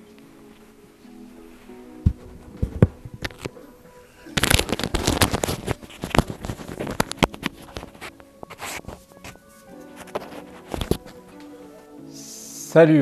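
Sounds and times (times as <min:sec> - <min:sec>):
clothing rustling: 0:00.0 - 0:12.1.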